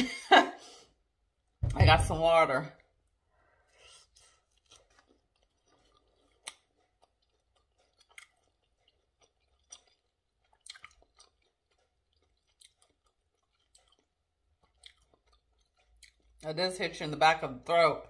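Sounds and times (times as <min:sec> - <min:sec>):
chewing with mouth clicks: 0:04.0 - 0:16.4.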